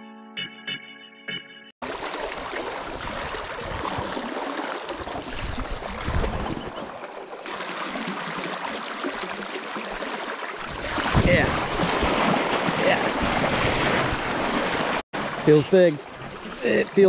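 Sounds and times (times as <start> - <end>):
choppy water lapping: 1.8 - 17.0
wind buffeting microphone: 5.0 - 6.8.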